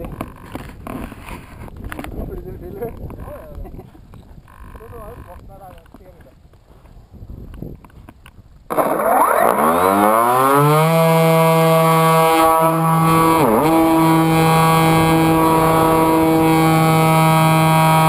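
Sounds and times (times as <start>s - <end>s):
electric motor propeller whine: 8.7s - 18.0s.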